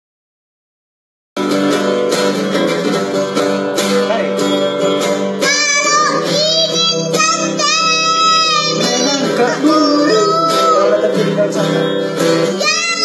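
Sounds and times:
acoustic guitar strumming: 1.4s - 13.0s
boy singing: 5.4s - 13.0s.

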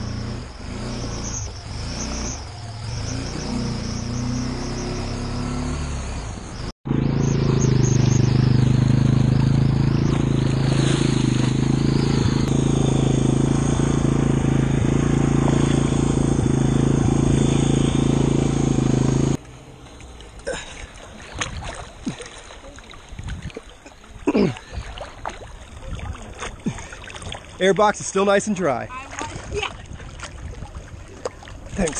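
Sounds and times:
atv engine running: 0.0s - 20.1s
tires churning water: 0.0s - 31.9s
water lapping and splashes: 7.6s - 12.5s, 19.4s - 31.9s.

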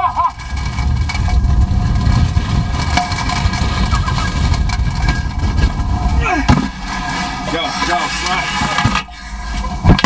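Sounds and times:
road and wind noise: 0.0s - 10.0s
vehicle engine rumble: 0.0s - 10.0s.

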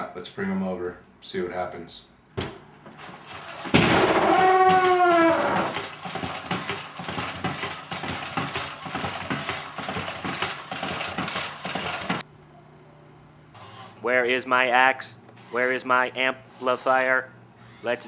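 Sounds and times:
toy robot walking clatter: 5.7s - 12.2s.

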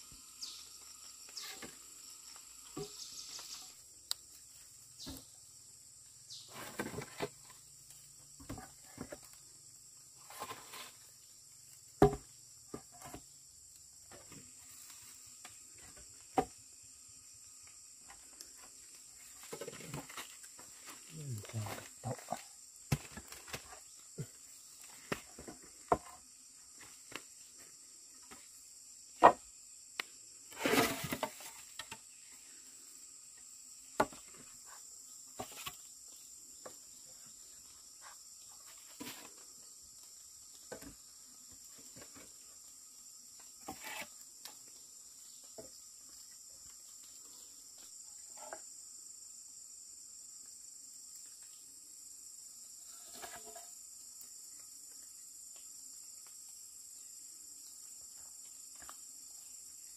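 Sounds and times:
insect chirring: 0.0s - 59.9s
rustle: 0.0s - 59.9s.

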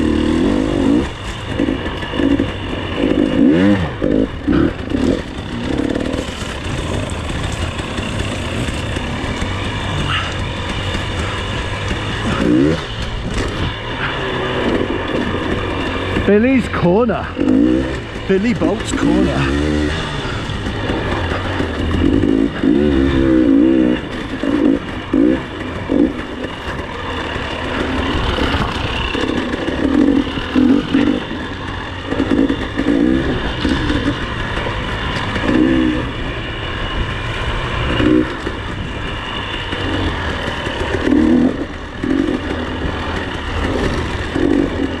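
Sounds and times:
dirt bike engine revving: 0.0s - 45.0s.

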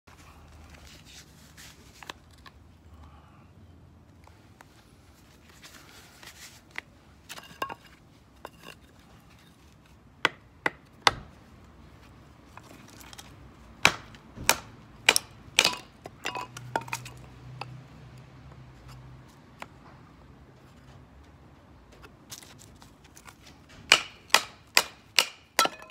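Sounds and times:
sharp knocks of blows on wood: 10.2s - 11.3s, 13.8s - 15.9s, 23.8s - 25.9s
wood handling knocks: 13.8s - 17.7s.

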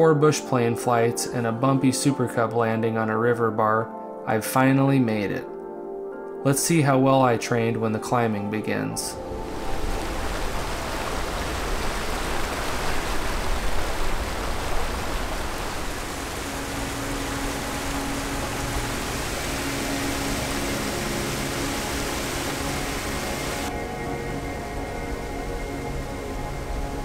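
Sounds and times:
creek rushing over rocks: 9.3s - 23.7s.

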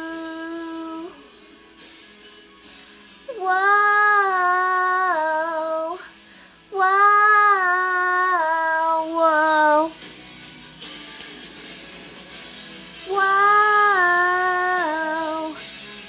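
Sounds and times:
woman singing wordless notes: 0.0s - 1.3s, 3.3s - 6.1s, 6.7s - 9.9s, 13.1s - 15.6s.

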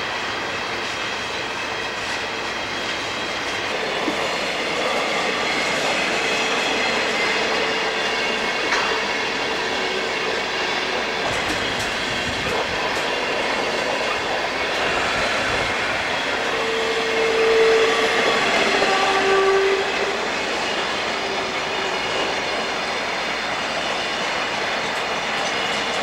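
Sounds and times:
train wheels rumbling on rail: 0.0s - 26.0s
wheels clicking over rail joints: 2.9s - 16.4s.

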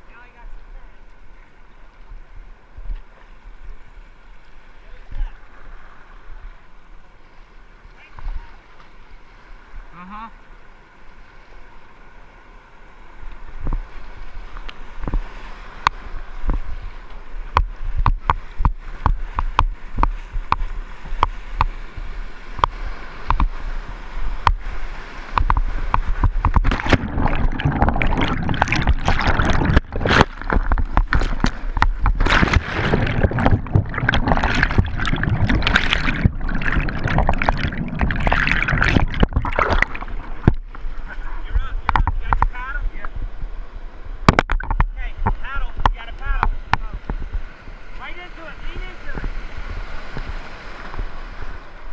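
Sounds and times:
paddle strokes and splashes: 10.5s - 48.0s
rushing whitewater: 24.6s - 43.1s.

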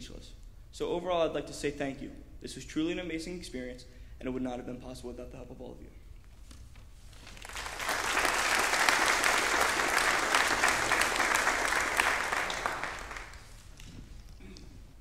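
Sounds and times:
congregation clapping: 7.1s - 14.4s.

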